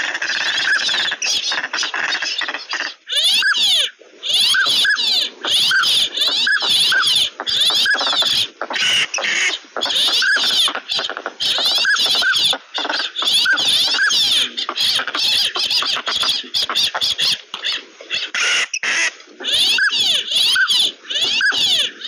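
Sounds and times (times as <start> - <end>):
duck drakes whistling: 0.0 - 17.4, 18.2 - 21.9
ducks raspy chatter: 0.0 - 22.0.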